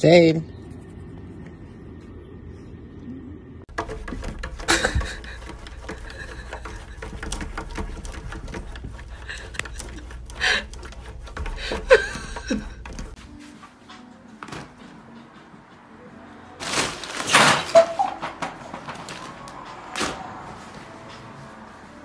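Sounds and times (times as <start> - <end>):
cat's paws tapping on window glass: 3.7 - 13.2.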